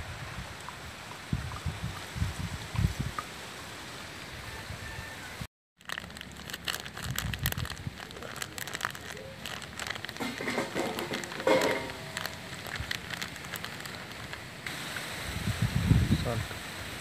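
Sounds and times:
powder pouring into bowl: 5.8 - 14.4
plastic packet crinkling: 5.8 - 14.5.

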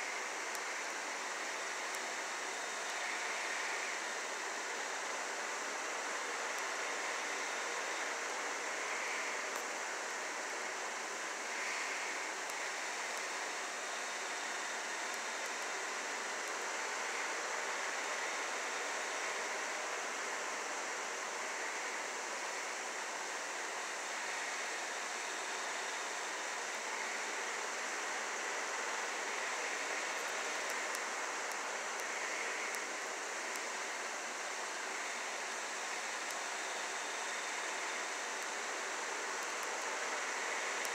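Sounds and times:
steady hiss: 0.0 - 40.9
faint ticks: 29.9 - 32.9.

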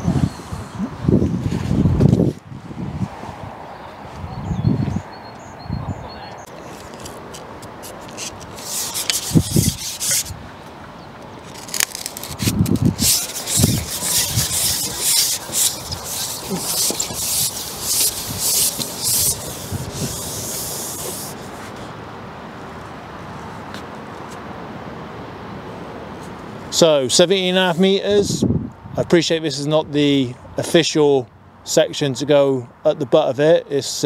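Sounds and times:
fishing pole rubbing and scraping: 6.6 - 10.4, 11.4 - 21.9.

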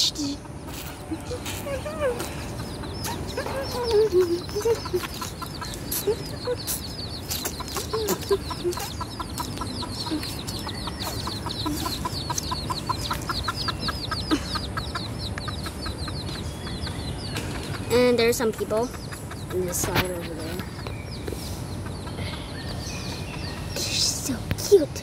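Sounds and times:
chicks peeping: 0.0 - 25.0
hen clucking softly: 1.2 - 16.4.

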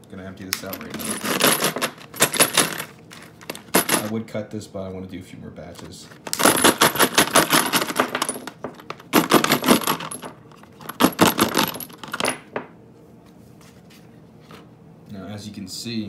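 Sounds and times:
cartridges rattling in plastic bottle: 6.3 - 12.4.

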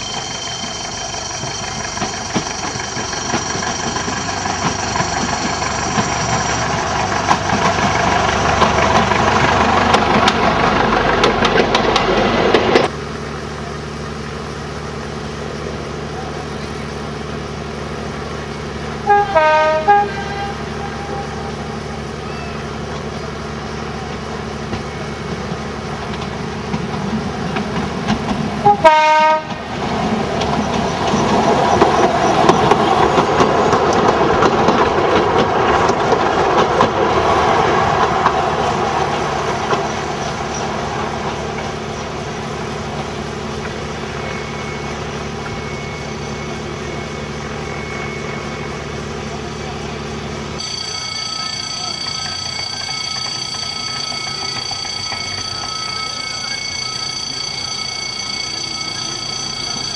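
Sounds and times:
railcar engine and wheels running: 0.0 - 59.9
railcar horn blasts: 19.0 - 21.8, 28.6 - 29.7.

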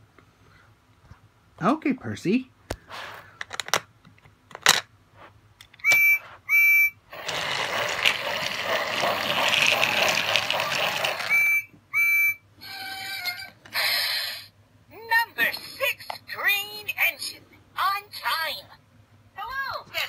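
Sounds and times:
electronic whistle toots: 5.8 - 7.1, 11.2 - 12.4
toy train hissing: 5.8 - 11.6, 13.7 - 14.5
toy train clicks: 7.2 - 11.4.

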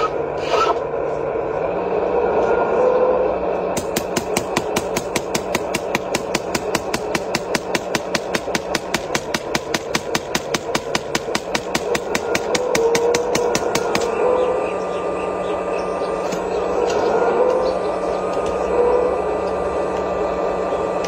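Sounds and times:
motor hum: 0.0 - 21.0
hydraulic breaker hammering concrete: 3.7 - 14.5.

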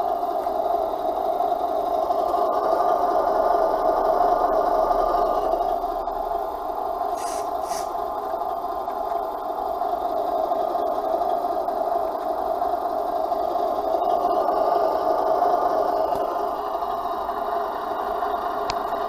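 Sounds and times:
diesel engine idle through small speaker: 0.0 - 19.0
short hisses: 7.1 - 7.9.

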